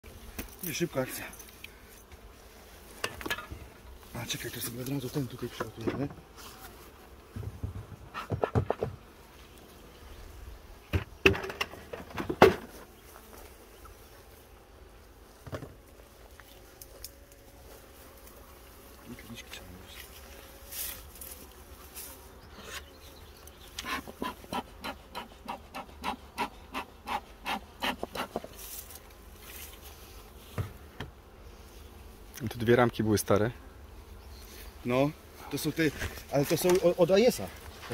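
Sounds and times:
honey bees buzzing: 0.0 - 37.9.

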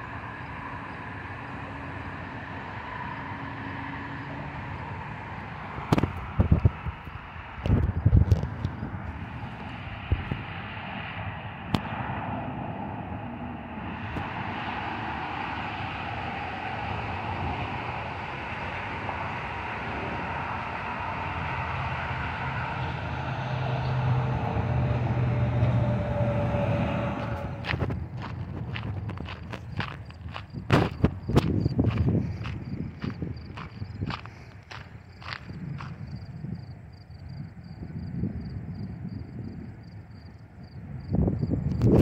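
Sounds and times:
aircraft engine rumble: 0.0 - 42.0.

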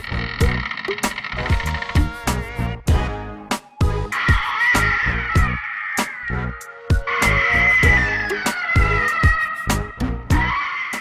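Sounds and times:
steady drum beat: 6.9 - 10.4.

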